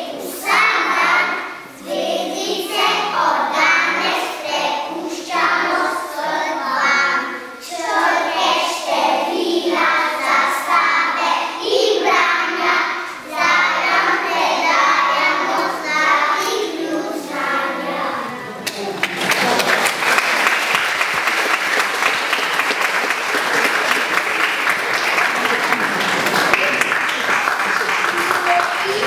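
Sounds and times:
children singing together: 0:00.0 - 0:18.6.

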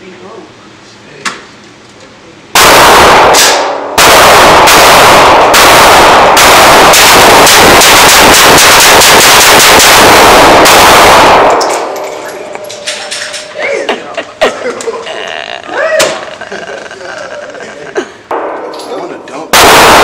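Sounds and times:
rifle shots echoing indoors: 0:02.5 - 0:13.5, 0:19.5 - 0:20.0.

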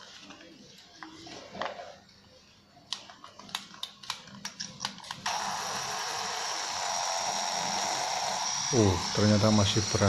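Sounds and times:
small motor whining: 0:05.3 - 0:10.0.

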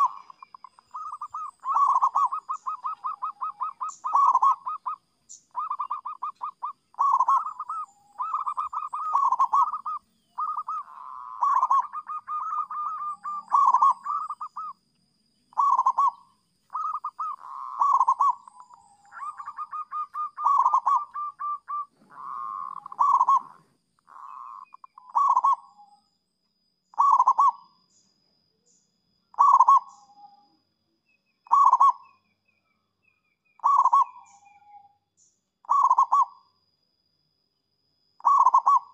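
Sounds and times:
dove cooing: 0:00.0 - 0:14.8, 0:15.5 - 0:25.8, 0:27.0 - 0:27.6, 0:29.3 - 0:30.3, 0:31.5 - 0:32.0, 0:33.6 - 0:34.4, 0:35.6 - 0:36.4, 0:38.2 - 0:38.9.

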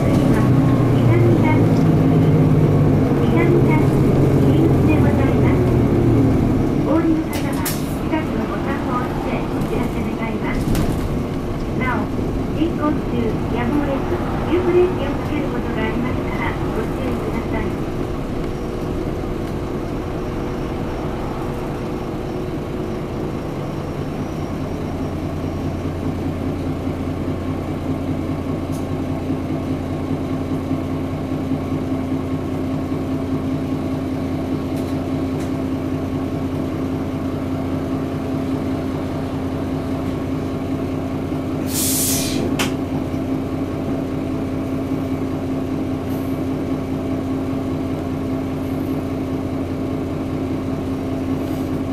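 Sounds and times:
bus diesel engine idling: 0:00.0 - 0:51.9
compressed air hiss: 0:41.6 - 0:42.5.

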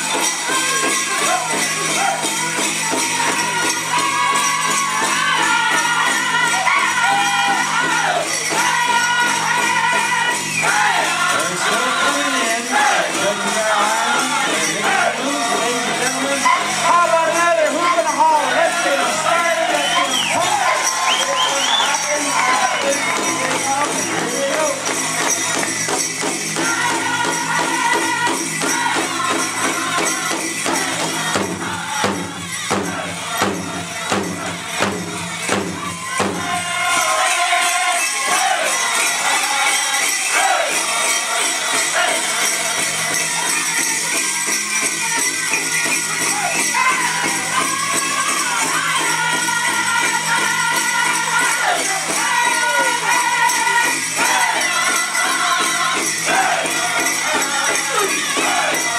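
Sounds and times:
bells jingling: 0:00.0 - 0:58.9
group singing: 0:00.0 - 0:58.9
big drum beating: 0:23.1 - 0:36.9.

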